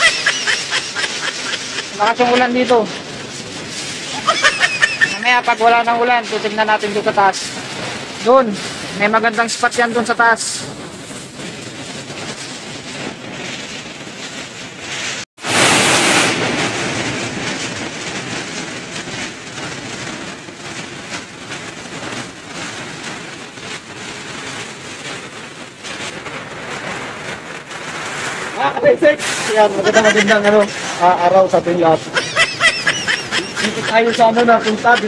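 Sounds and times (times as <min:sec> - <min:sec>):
waterfall rushing: 0:00.0 - 0:08.8, 0:15.4 - 0:17.9, 0:27.6 - 0:35.0
heavy rain: 0:00.0 - 0:35.0.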